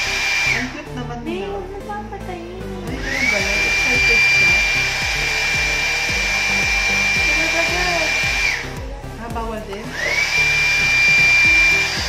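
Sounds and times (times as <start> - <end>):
heat gun motor whine: 0.0 - 0.7, 2.9 - 8.8, 9.8 - 12.0.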